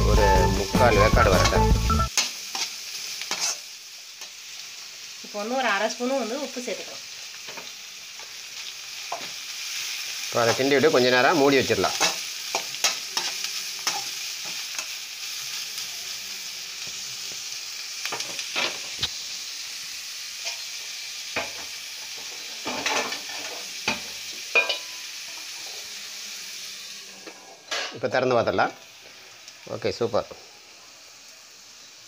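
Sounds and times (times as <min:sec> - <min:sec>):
vegetables sizzling in oil: 0:00.0 - 0:32.0
metal spatula scraping pan: 0:03.3 - 0:03.6.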